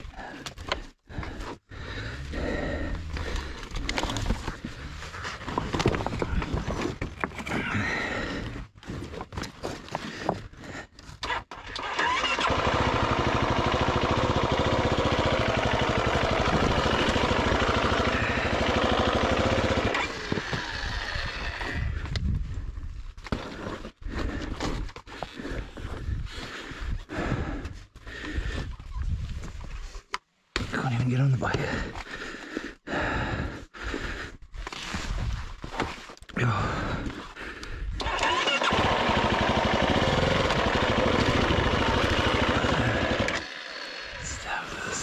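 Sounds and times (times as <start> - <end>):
dirt bike scraping on rocks: 3.3 - 7.8
motorcycle engine running: 12.0 - 22.0, 38.0 - 44.4.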